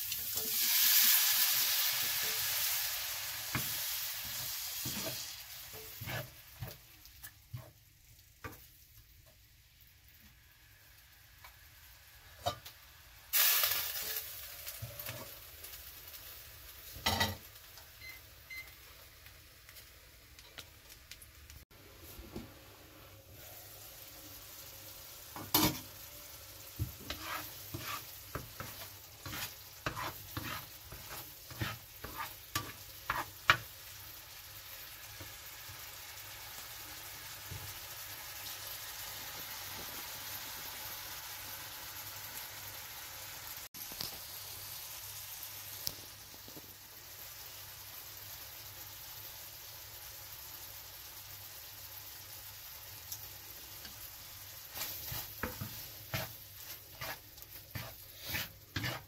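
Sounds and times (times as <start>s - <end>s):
curry sizzling: 0.0s - 59.0s
spatula scraping frying pan: 0.3s - 7.8s, 26.7s - 33.7s, 54.7s - 59.0s
spatula knocking pan: 26.8s - 33.7s.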